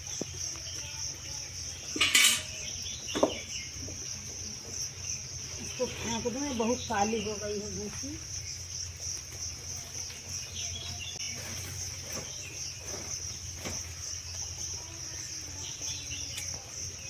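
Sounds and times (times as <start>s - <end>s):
insects trilling: 0.0s - 17.0s.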